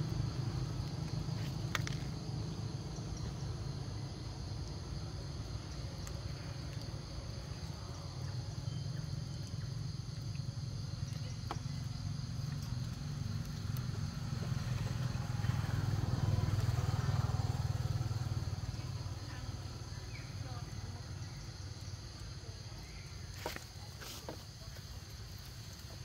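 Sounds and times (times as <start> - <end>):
distant motor vehicle passing: 11.6 - 21.3.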